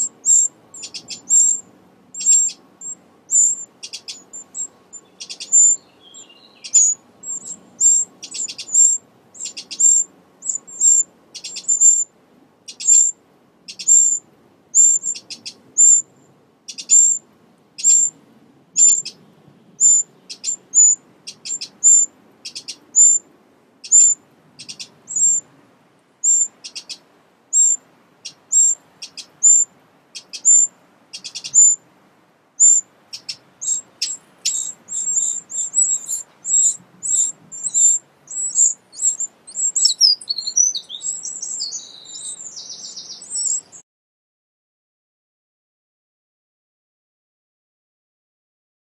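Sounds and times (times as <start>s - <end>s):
wrens giving high-pitched calls: 0.0s - 16.1s, 16.7s - 17.2s, 17.8s - 18.2s, 18.8s - 19.2s, 19.8s - 23.2s, 23.8s - 25.4s, 26.2s - 31.8s, 32.6s - 43.8s.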